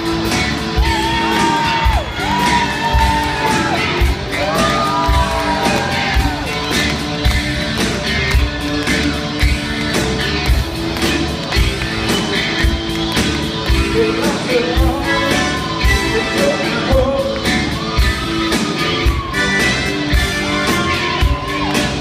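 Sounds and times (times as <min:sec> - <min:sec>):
rock song with vocals: 0:00.0 - 0:22.0.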